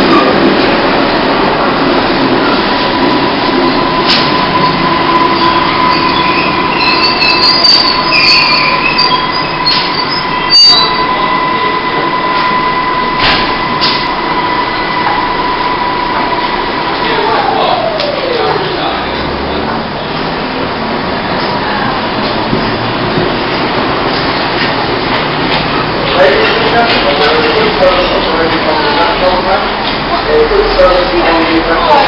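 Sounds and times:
train slowing to a stop: 0:00.0 - 0:32.0
wheels and brakes squealing: 0:03.4 - 0:12.9.

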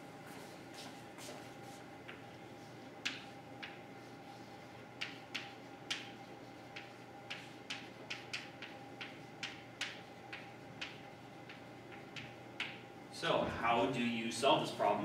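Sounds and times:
faint room hum: 0:00.0 - 0:15.0
chalk clicking on blackboard: 0:03.0 - 0:12.8.

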